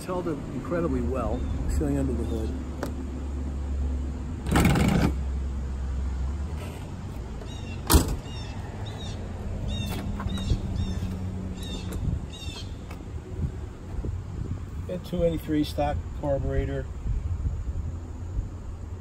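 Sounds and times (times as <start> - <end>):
car hood latch clack: 7.8 - 8.3.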